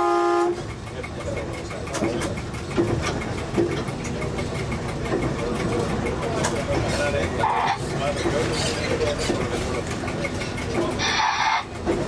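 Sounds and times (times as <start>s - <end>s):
railcar horn blast: 0.0s - 0.7s
diesel engine running: 0.0s - 12.0s.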